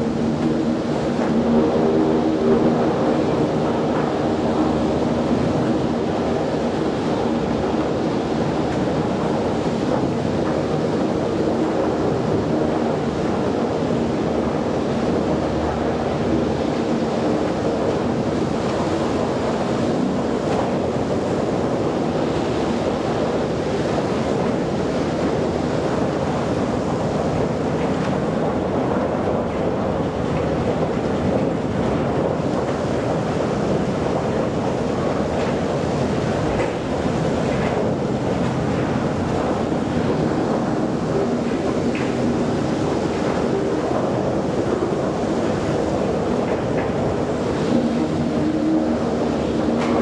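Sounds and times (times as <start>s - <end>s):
log-yard machinery roaring: 0.0s - 19.2s, 36.2s - 50.0s.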